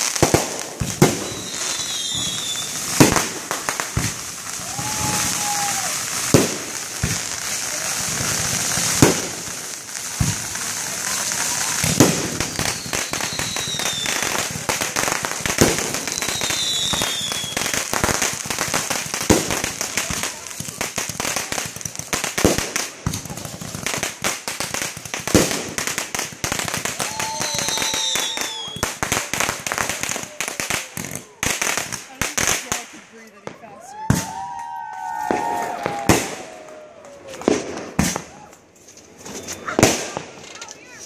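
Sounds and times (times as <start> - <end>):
fireworks booming: 0.0 - 38.5, 39.1 - 41.0
fireworks crackling: 0.0 - 41.0
falling whistles: 1.2 - 2.8, 12.4 - 14.2, 16.1 - 17.7, 27.0 - 28.9, 39.2 - 39.8.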